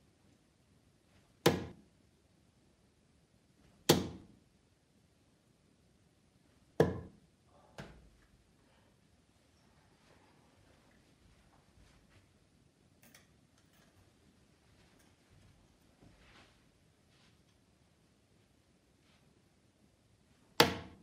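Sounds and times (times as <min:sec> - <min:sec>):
darts thudding into dartboard: 0:01.4 - 0:01.8, 0:03.8 - 0:04.3, 0:06.8 - 0:07.2, 0:20.6 - 0:21.0.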